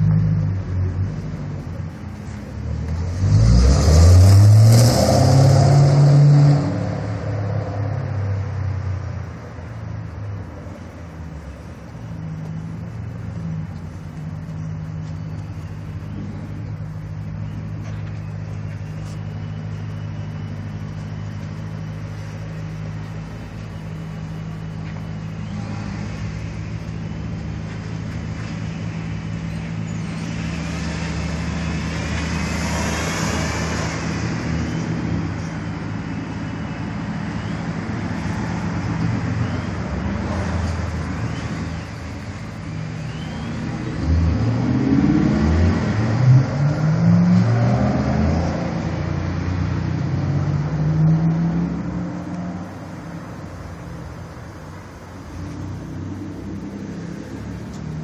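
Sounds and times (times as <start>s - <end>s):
car engine idling with exhaust rumble: 0.0s - 3.1s, 8.7s - 31.9s, 52.2s - 58.0s
car engine revving: 0.0s - 10.6s, 37.9s - 58.0s.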